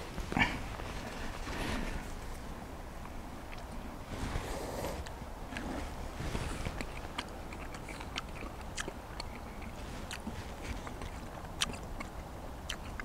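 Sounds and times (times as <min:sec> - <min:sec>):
person chewing: 0:03.5 - 0:03.8, 0:04.8 - 0:13.0.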